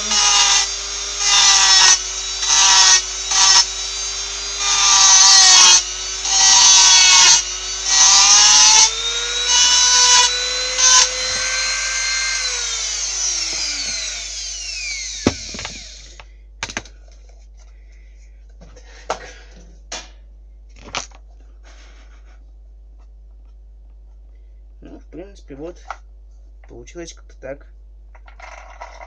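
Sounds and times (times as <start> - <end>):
bit grinding into workpiece: 0.0 - 16.2
rotary power tool whining: 0.0 - 16.3
sharp knocks: 15.2 - 15.9.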